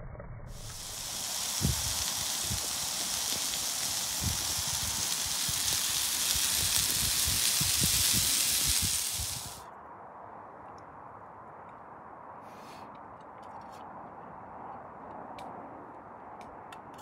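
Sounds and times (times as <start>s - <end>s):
food sizzling in frying pan: 0.5s - 9.6s.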